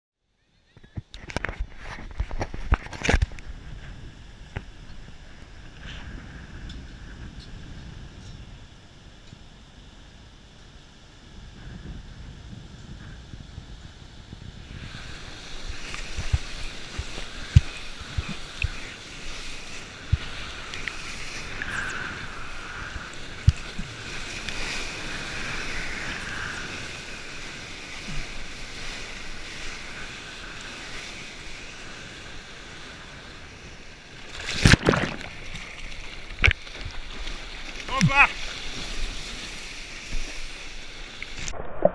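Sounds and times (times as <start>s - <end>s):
sea surf rushing: 3.1s - 41.9s
loud splash: 34.3s - 36.1s.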